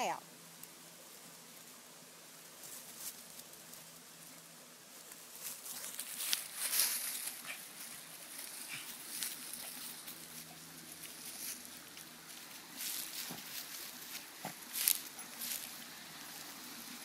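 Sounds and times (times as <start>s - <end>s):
dogs scratching in dirt: 5.0s - 17.0s.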